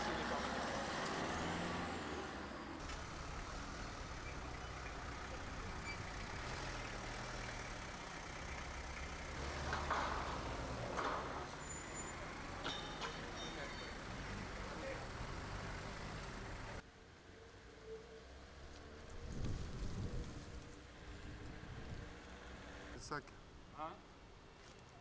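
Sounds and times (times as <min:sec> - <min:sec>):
vehicle engines running: 0:00.0 - 0:16.8.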